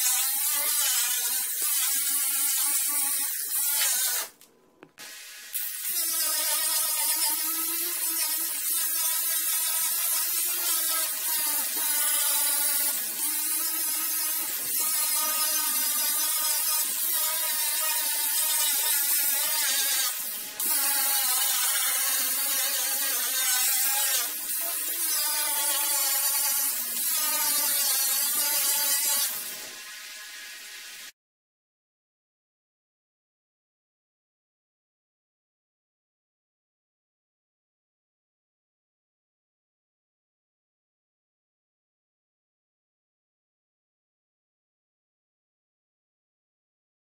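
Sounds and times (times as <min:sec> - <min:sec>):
grinder grinding fiberglass: 0:00.0 - 0:04.4, 0:05.0 - 0:31.1.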